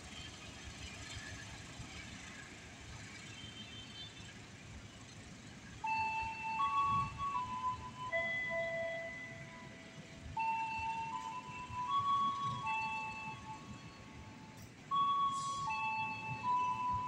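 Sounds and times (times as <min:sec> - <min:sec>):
rail station background noise: 0:00.0 - 0:17.0
chiming electronic jingle: 0:10.4 - 0:17.0.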